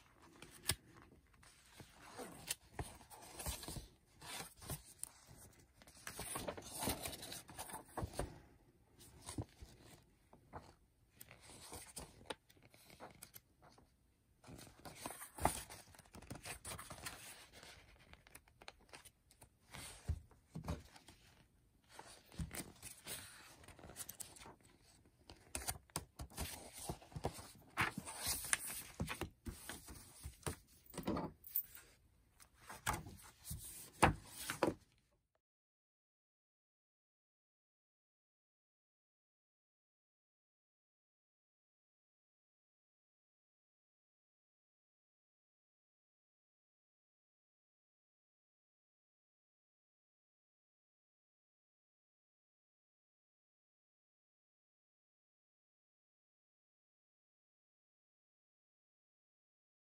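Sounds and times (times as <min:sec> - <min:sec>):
paper pages turning: 0:00.2 - 0:08.2, 0:09.1 - 0:13.8, 0:14.5 - 0:21.2, 0:21.9 - 0:30.6, 0:32.6 - 0:34.8.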